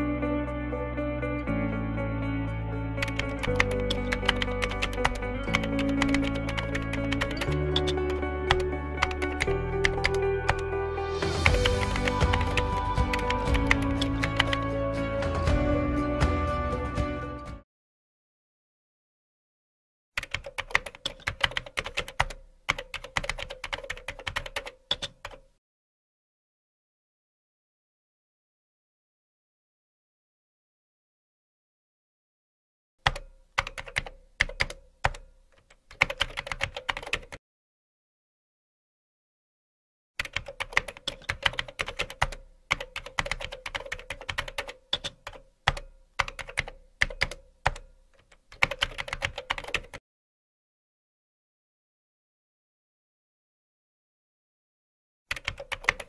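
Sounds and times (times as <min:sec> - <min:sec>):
typing on keyboard: 0:03.0 - 0:10.6, 0:11.4 - 0:14.7, 0:20.2 - 0:25.5, 0:33.0 - 0:37.4, 0:40.2 - 0:50.0, 0:55.3 - 0:56.0.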